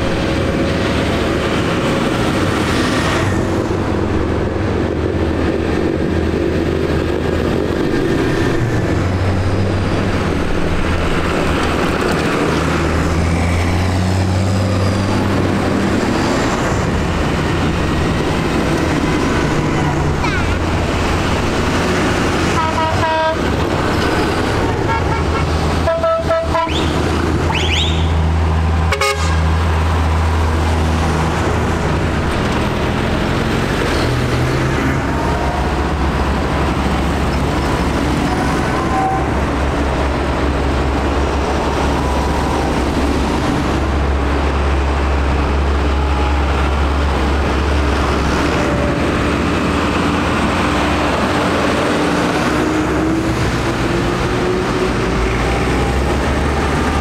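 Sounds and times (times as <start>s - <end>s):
tractor engines driving past: 0.0s - 57.0s
tractor horn toots: 22.6s - 23.5s, 24.8s - 28.2s, 28.9s - 29.4s.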